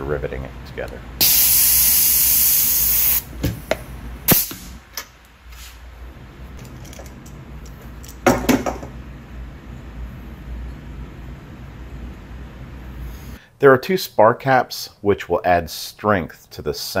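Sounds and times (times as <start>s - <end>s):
pneumatic tool air hissing: 1.2s - 3.3s, 4.3s - 4.8s
metal parts clattering: 6.6s - 7.4s.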